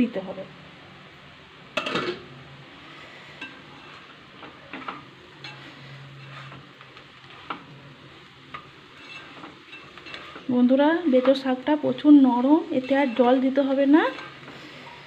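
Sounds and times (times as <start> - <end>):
faint sizzle: 0.0 - 15.0
spatula tapping and scraping pan: 3.4 - 7.8, 8.5 - 10.5, 12.7 - 14.7.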